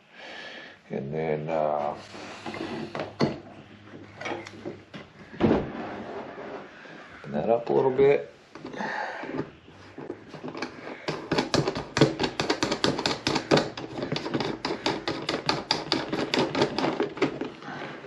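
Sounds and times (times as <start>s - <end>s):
hand tool scraping plastic: 1.8s - 4.8s, 8.5s - 18.0s.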